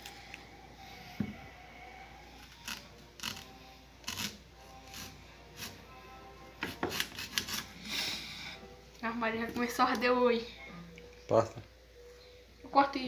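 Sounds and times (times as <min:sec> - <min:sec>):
knife cutting onion: 0:06.6 - 0:07.7.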